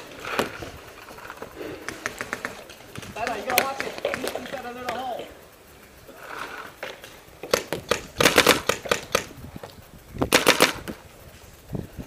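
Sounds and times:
paintball marker firing: 1.8s - 5.1s, 6.8s - 9.4s, 10.2s - 11.0s.

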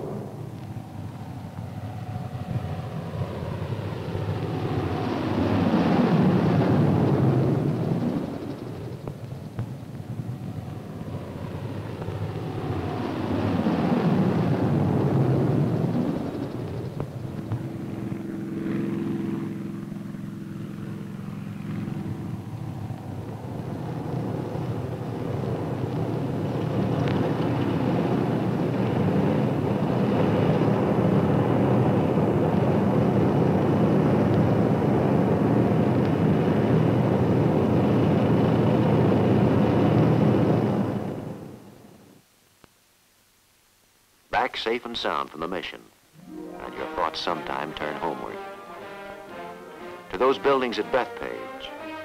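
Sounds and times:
engine rush: 0.0s - 41.6s
radial engine droning: 0.0s - 41.6s, 46.2s - 52.0s.

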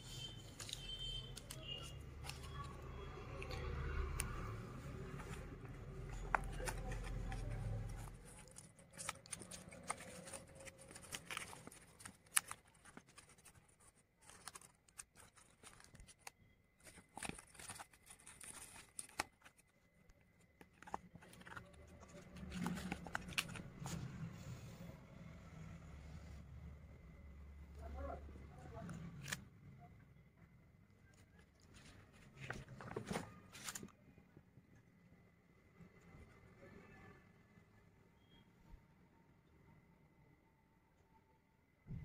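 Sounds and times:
paper rustling and crinkling: 0.0s - 24.7s, 28.7s - 29.4s, 30.9s - 34.3s.

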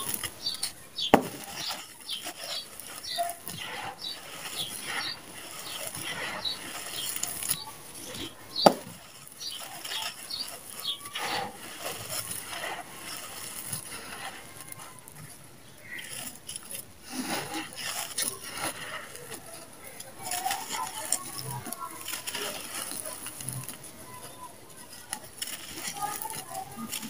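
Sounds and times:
gritty sand crunching and pattering: 0.0s - 27.0s
sharp knocks: 8.6s - 8.9s.

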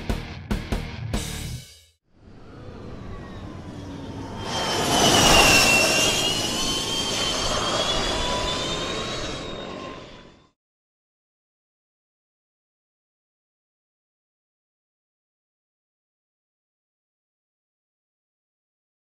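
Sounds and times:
whoosh with high whine: 2.2s - 10.5s.

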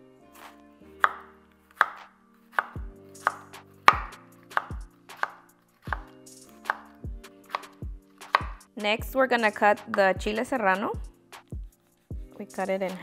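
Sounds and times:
knife striking cutting board: 0.4s - 8.6s.

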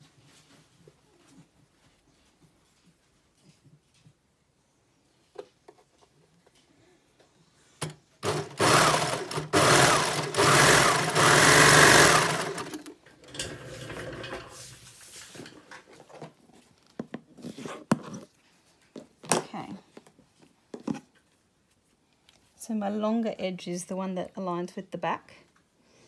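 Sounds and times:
serger stitching: 8.2s - 14.7s.

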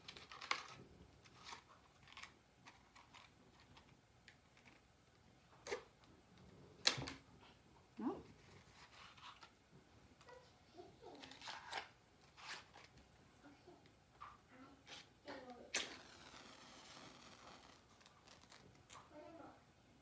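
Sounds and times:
match scratching on matchbox: 15.7s - 18.6s.

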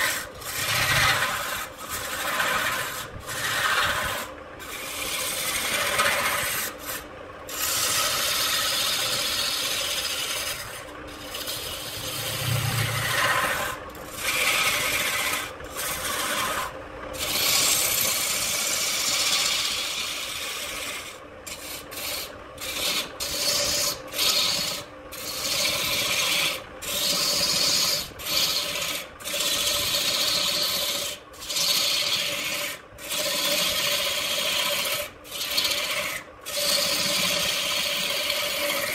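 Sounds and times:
turning tool scraping wood: 0.0s - 38.9s
lathe running tone: 7.6s - 16.6s.

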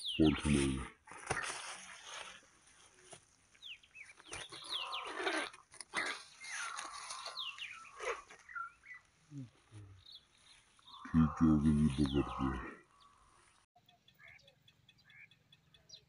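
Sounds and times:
small birds chirping: 0.0s - 16.0s
rustling: 1.1s - 10.8s.

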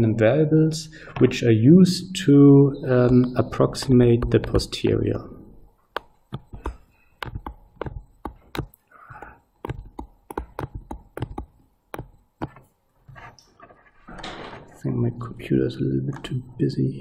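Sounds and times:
stylus tapping on tablet screen: 3.0s - 4.7s, 5.9s - 13.3s.

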